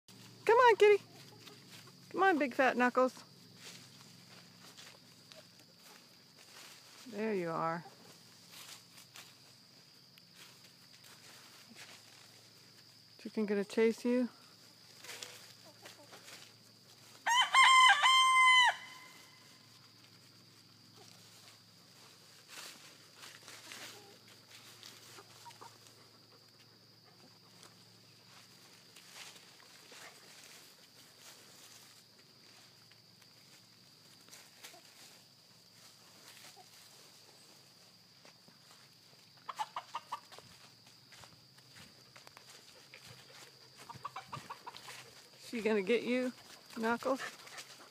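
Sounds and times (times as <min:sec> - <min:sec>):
chicken crowing: 0:17.2 - 0:19.5
hen clucking: 0:25.0 - 0:26.0, 0:39.4 - 0:40.4, 0:43.8 - 0:45.2.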